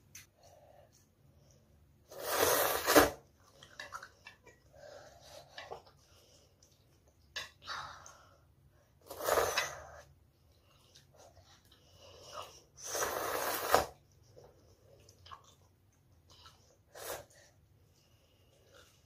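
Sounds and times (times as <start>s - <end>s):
child slurping noodles: 2.1s - 3.2s, 9.0s - 10.1s, 12.3s - 14.0s, 16.9s - 17.5s.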